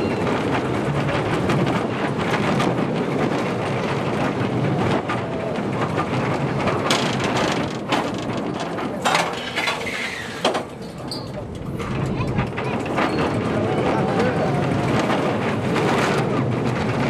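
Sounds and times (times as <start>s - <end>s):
coaster car wheels rumbling: 0.0s - 17.0s
sharp knocks and clatters: 0.2s - 13.6s.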